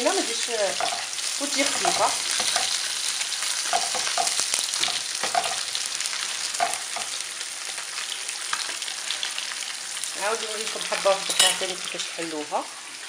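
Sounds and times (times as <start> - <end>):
fish sizzling in hot oil: 0.0 - 13.0
metal tongs clinking: 11.2 - 11.7.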